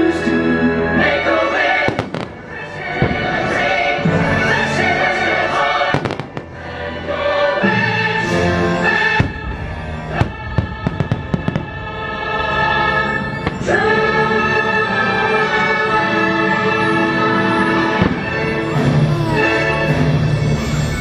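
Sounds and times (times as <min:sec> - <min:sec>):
orchestral and choral music: 0:00.0 - 0:21.0
fireworks bangs: 0:01.8 - 0:03.9, 0:05.9 - 0:06.6, 0:09.2 - 0:11.9, 0:18.0 - 0:20.2
fireworks crackling pops: 0:01.9 - 0:02.4.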